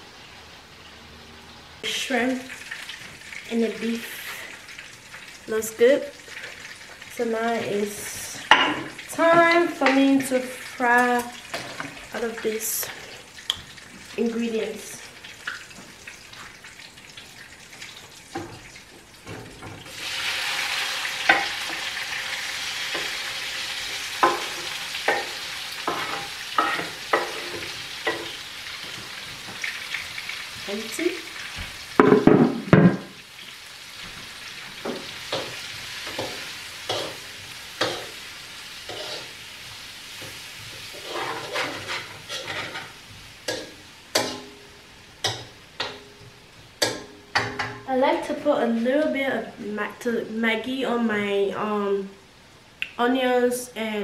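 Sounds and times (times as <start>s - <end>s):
vegetables sizzling in hot oil: 0.0s - 48.3s
spatula scraping a pan: 19.5s - 30.6s, 34.0s - 46.2s.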